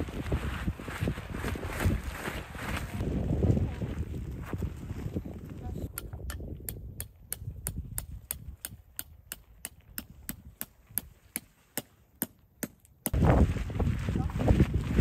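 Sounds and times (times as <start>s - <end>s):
tent peg being hammered: 5.9s - 13.2s.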